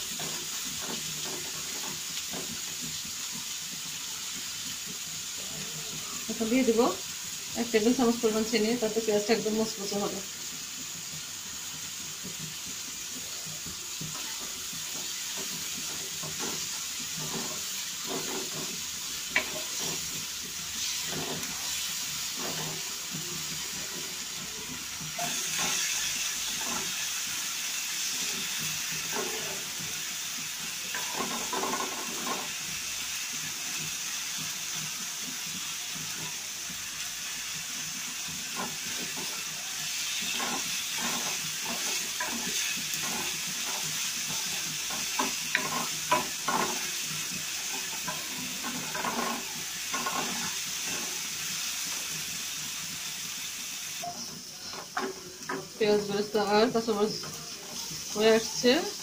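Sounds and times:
onions sizzling in hot oil: 0.0s - 59.0s
spatula scraping pan: 13.9s - 27.2s, 30.8s - 32.6s, 38.2s - 52.2s.

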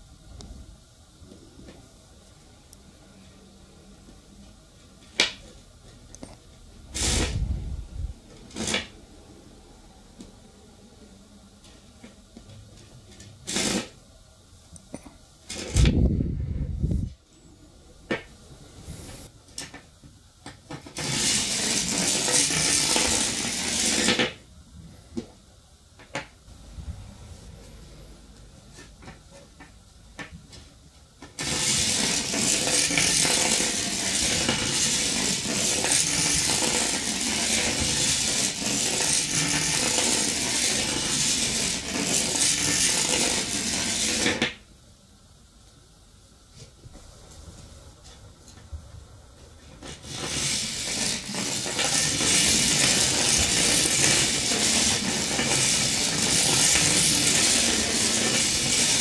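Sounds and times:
magnets rattling along wire coil: 7.0s - 7.5s, 13.4s - 13.9s, 21.0s - 24.3s, 31.4s - 44.5s, 49.8s - 59.0s.

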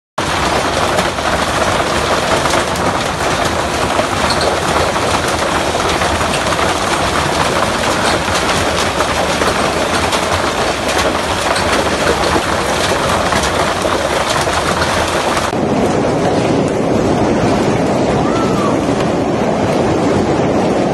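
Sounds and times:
hailstones clattering: 0.2s - 15.6s
strong wind: 0.2s - 20.9s.

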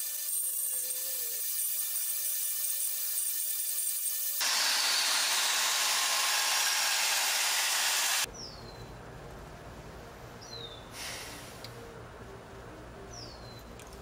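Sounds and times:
band saw cutting metal: 0.0s - 8.3s.

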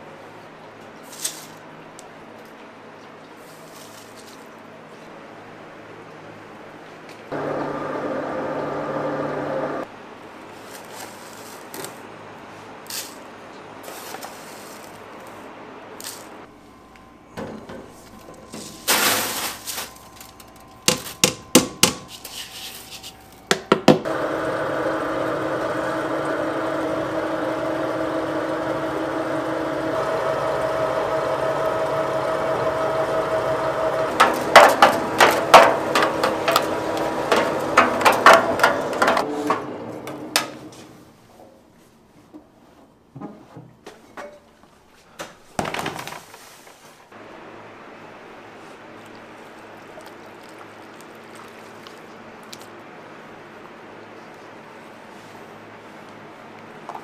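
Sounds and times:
sifting machine humming: 7.3s - 9.9s, 24.0s - 41.2s
flour rushing into hopper: 24.1s - 39.3s
sharp knocks and rattles: 34.2s - 39.2s.

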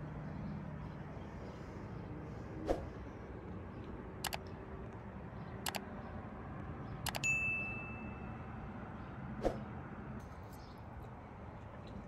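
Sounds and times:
mouse clicks: 4.2s - 4.5s, 5.6s - 5.8s
notification bell ding: 7.1s - 8.3s.

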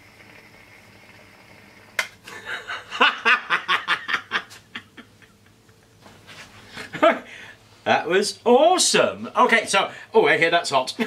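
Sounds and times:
man laughing: 2.3s - 6.1s, 6.8s - 7.3s.

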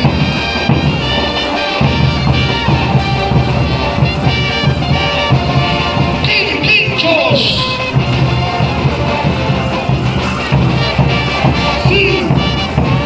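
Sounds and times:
lively dance music: 0.0s - 13.0s.

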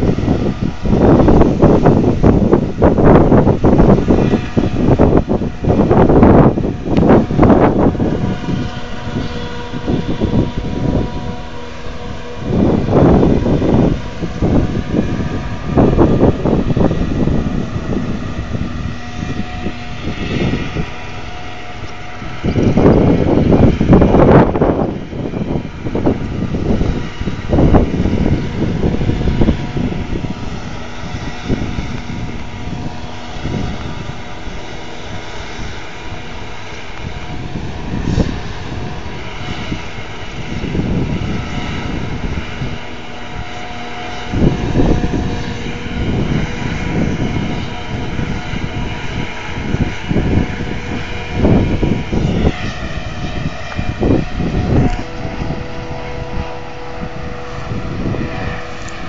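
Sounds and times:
harvest machinery droning: 0.0s - 59.0s
wind buffeting microphone: 0.0s - 59.0s.

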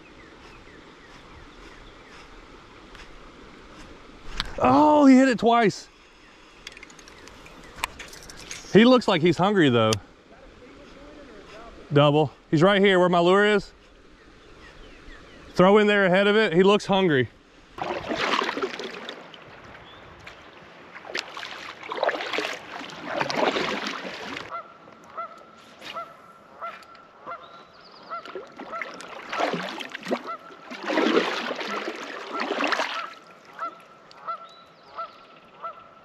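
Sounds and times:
paddle splashing in water: 17.8s - 24.6s, 28.1s - 34.4s.

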